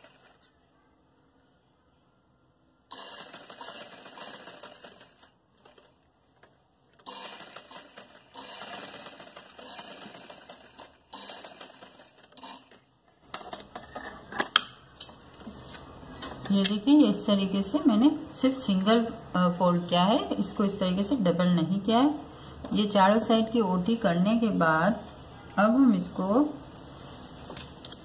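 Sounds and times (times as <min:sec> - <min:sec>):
sewing machine stitching: 0:02.9 - 0:06.0, 0:07.0 - 0:12.9.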